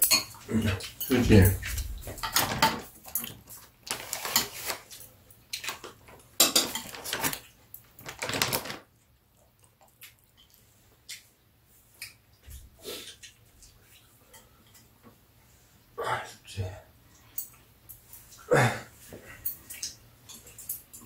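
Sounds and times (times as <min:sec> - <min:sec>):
metal chopsticks clinking on bowls: 0:00.0 - 0:05.7.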